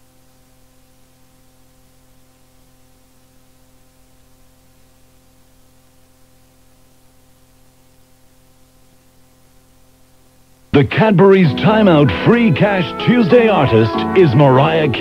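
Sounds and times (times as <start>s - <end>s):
cassette tape hiss: 0.0s - 15.0s
faint mains hum: 0.0s - 15.0s.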